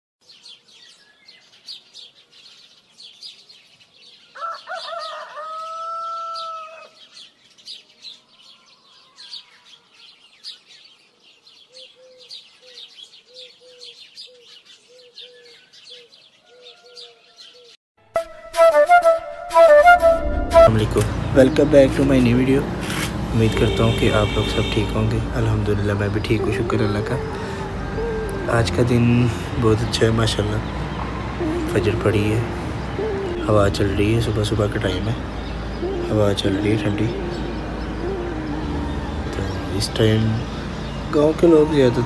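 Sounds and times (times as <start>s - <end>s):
small birds chirping: 0.2s - 17.8s, 21.0s - 42.0s
rooster crowing: 4.3s - 7.1s, 16.5s - 17.6s, 38.2s - 39.7s
short low calls: 26.1s - 34.2s.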